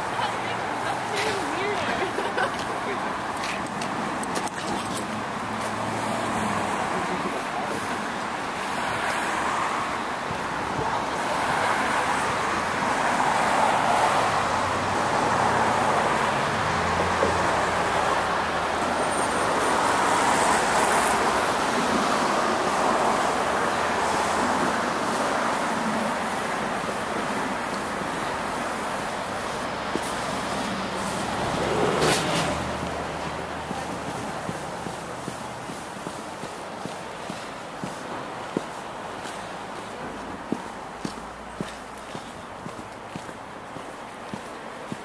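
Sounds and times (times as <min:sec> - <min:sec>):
traffic tyre noise: 0:00.0 - 0:45.0.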